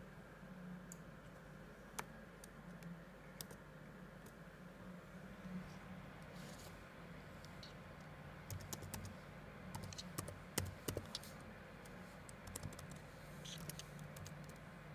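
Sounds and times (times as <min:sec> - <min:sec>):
faint low hum: 0:00.0 - 0:14.9
keyboard typing clicks: 0:02.0 - 0:03.6, 0:08.5 - 0:09.1, 0:09.7 - 0:11.2, 0:12.3 - 0:14.6.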